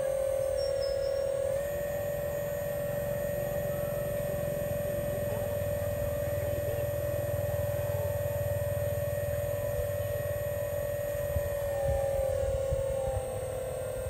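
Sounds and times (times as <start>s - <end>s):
pump motor whine: 0.0s - 14.0s.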